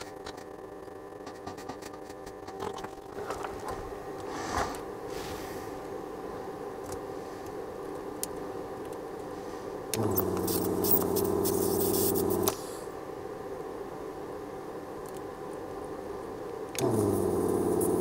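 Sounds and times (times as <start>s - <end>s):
electrical hum: 0.0s - 18.0s
small motor buzzing: 10.0s - 12.5s, 16.8s - 18.0s
hiss: 10.0s - 12.9s.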